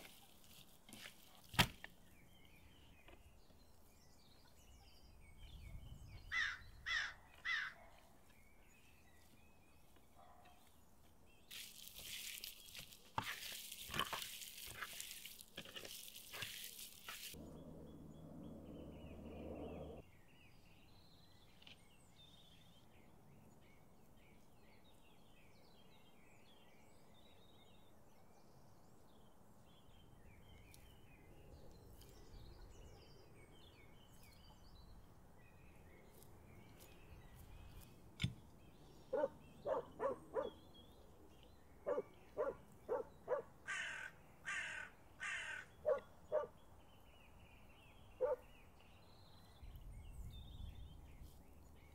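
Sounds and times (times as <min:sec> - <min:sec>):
small birds chirping: 0:00.0 - 0:51.9
loud repeated bird calls: 0:06.2 - 0:08.1, 0:41.8 - 0:46.6, 0:48.1 - 0:48.6.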